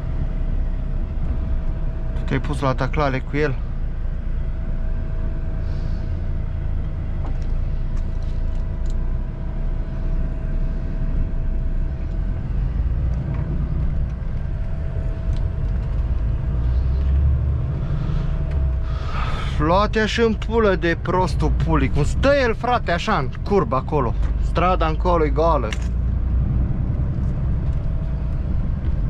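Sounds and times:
diesel truck engine rumble: 0:00.0 - 0:29.0.

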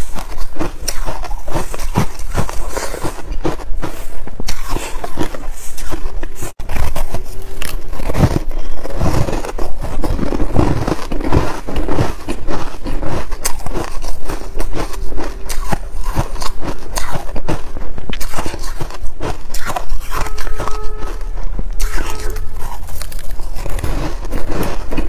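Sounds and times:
crunching ice chewing: 0:00.0 - 0:25.0.

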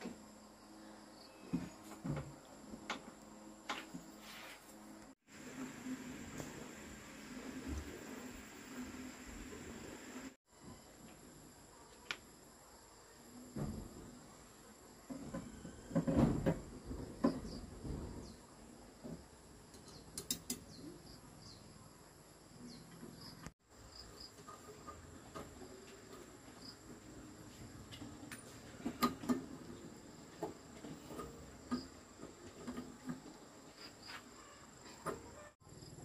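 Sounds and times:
faint high insect trill: 0:00.2 - 0:02.0.

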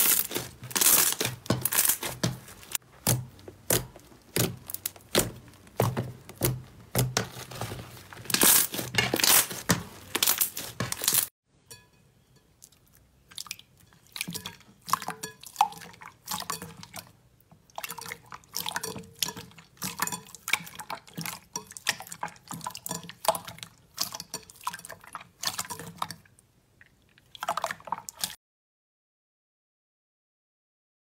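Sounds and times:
slime squelching with pops: 0:00.0 - 0:11.3.

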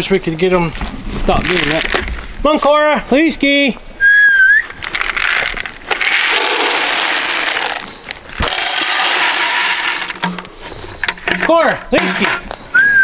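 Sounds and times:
dry kibble pouring into plastic feeder: 0:04.9 - 0:10.4.

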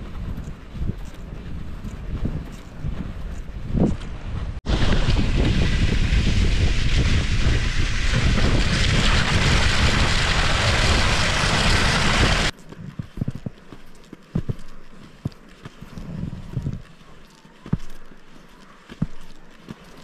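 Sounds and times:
wind on microphone: 0:00.0 - 0:13.5
ski strides: 0:00.0 - 0:20.0
skis and sled hissing over snow: 0:04.7 - 0:12.5, 0:14.9 - 0:20.0.

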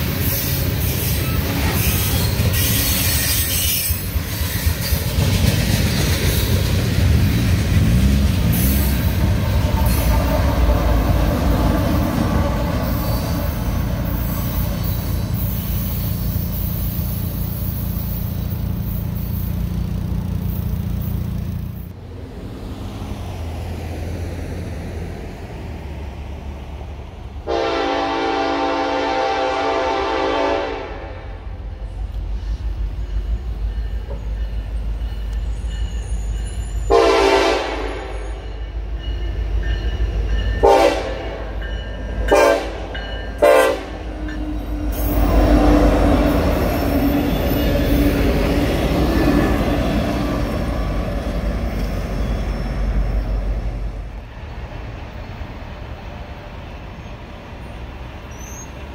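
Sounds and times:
train passing rumble: 0:00.0 - 0:58.9
train horn blasts: 0:27.4 - 0:31.6, 0:36.9 - 0:38.3, 0:40.6 - 0:41.5, 0:42.3 - 0:48.1.

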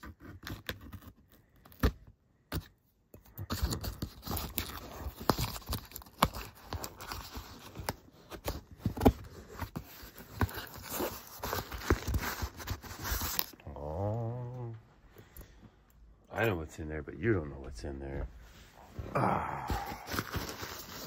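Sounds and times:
cardboard scraping and tearing: 0:03.4 - 0:13.6, 0:19.8 - 0:21.0.

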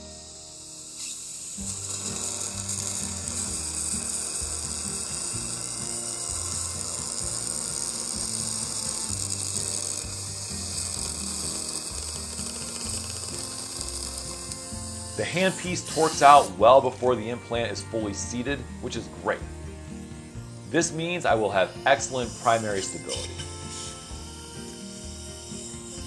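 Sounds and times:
dental handpiece whirring: 0:00.0 - 0:26.0.

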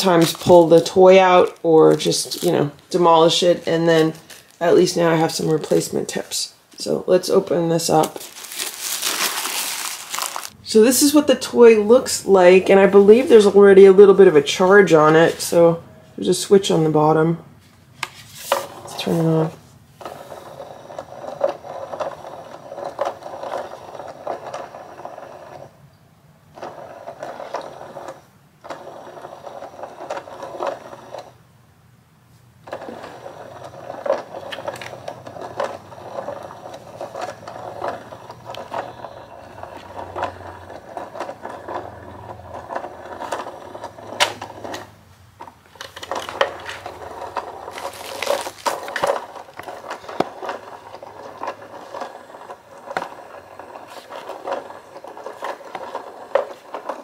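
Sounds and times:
toy motor whirring and clicking: 0:20.0 - 0:25.7, 0:32.7 - 0:44.9, 0:45.8 - 0:57.0.

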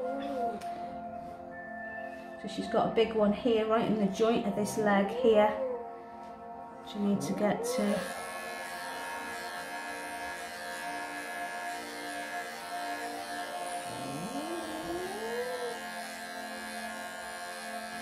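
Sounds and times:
background music: 0:00.0 - 0:18.0
electric clipper buzzing: 0:07.3 - 0:18.0.

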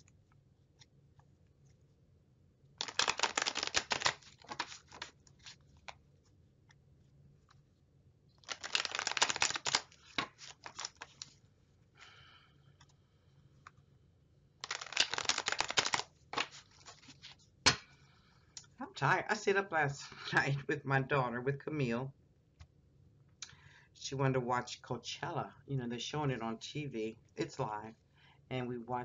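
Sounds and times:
cards shuffled by hand: 0:02.8 - 0:06.0, 0:08.4 - 0:11.4, 0:14.6 - 0:17.5.

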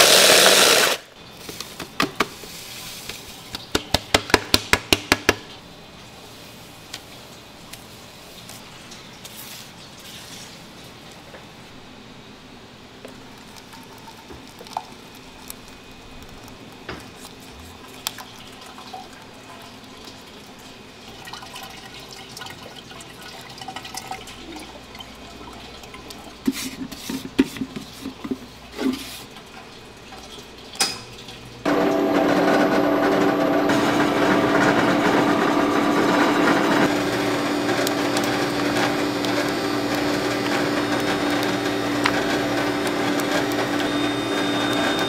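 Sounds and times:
machine motor hum: 0:31.7 - 0:45.0.

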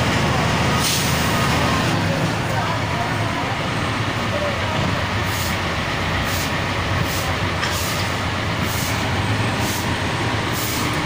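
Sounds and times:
truck engine running: 0:00.0 - 0:11.0
brooms swishing on wet pavement: 0:05.2 - 0:11.0.

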